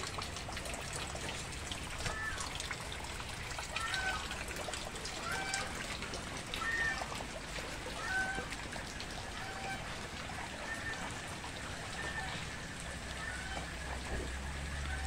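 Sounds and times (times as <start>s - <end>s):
water trickling and running: 0.0s - 15.0s
faint high calls: 2.0s - 2.7s, 6.6s - 7.2s, 9.2s - 15.0s.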